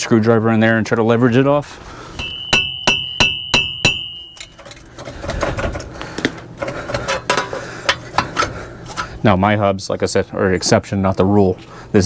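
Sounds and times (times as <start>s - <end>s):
hammer taps on metal: 2.2s - 4.6s
screwdriver scraping metal: 4.4s - 5.6s.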